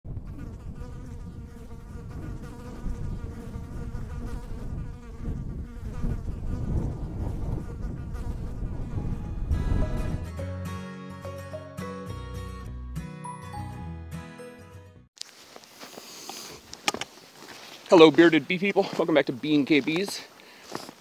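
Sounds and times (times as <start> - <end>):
bees buzzing: 0.2 - 9.4
chiming music jingle: 13.0 - 14.9.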